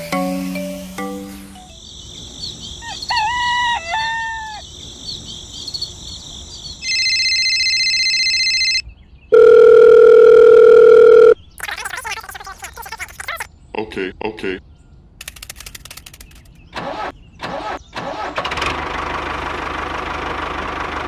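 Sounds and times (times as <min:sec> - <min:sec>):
faint insect-like chirping: 0:00.2 - 0:03.4, 0:04.0 - 0:08.7
rooster crowing: 0:02.8 - 0:04.6
telephone ringing with electronic trill: 0:06.8 - 0:11.4
steady electronic phone tone: 0:06.9 - 0:11.4.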